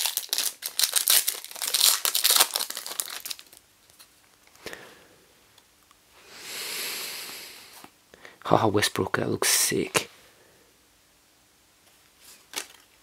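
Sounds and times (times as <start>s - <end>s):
plastic wrapper crinkling and tearing: 0.0s - 4.1s.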